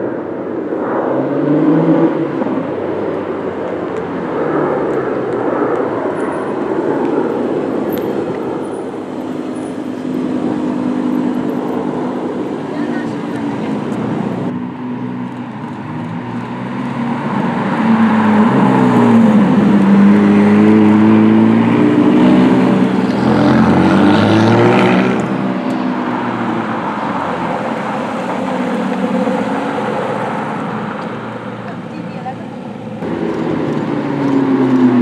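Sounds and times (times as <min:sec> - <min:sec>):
sports cars driving past: 0:00.0 - 0:35.0.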